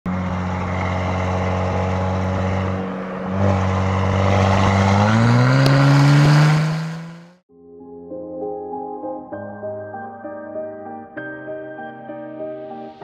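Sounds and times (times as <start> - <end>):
car exhaust revving: 0.1 - 7.4.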